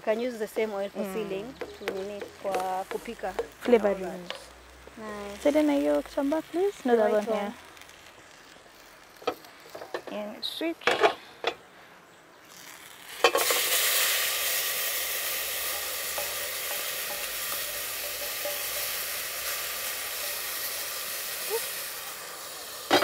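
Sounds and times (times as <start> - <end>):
vegetables sizzling in a pot: 0.0 - 10.9, 12.4 - 23.0
small scraping ticks: 1.6 - 10.2, 12.4 - 13.8.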